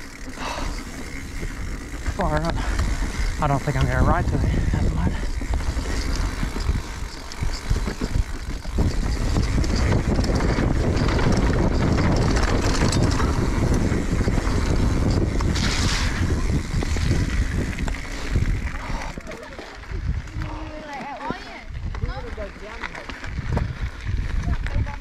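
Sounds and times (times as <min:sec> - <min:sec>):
wind buffeting microphone: 0:00.0 - 0:22.5, 0:23.2 - 0:25.0
bike rattling over bumps: 0:00.0 - 0:25.0
tyres rolling on dirt trail: 0:00.0 - 0:25.0.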